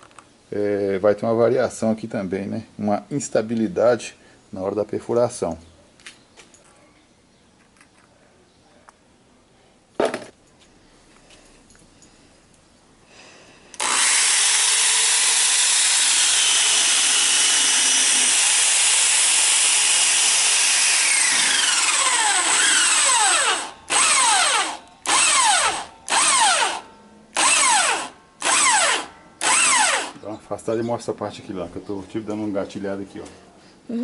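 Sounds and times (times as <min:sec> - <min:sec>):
electric drill drilling steel: 0:13.8 - 0:26.8, 0:27.4 - 0:30.2.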